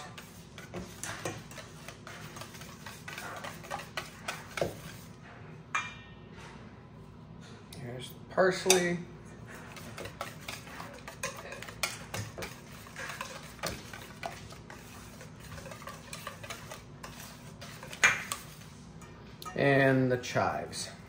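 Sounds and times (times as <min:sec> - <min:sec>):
whisk clinking in metal bowl: 0:00.0 - 0:05.1, 0:08.6 - 0:09.0, 0:09.6 - 0:20.1.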